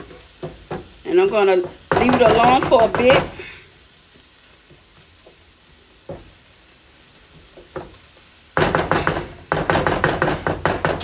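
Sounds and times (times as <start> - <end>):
greens sizzling in a skillet: 0.0 - 11.0
loud clatter of rapid knocks: 1.9 - 3.2, 8.6 - 11.0.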